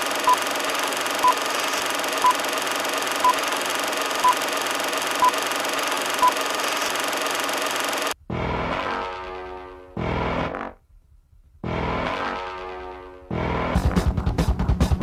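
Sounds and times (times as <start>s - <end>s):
film projector rattling: 0.0s - 8.2s.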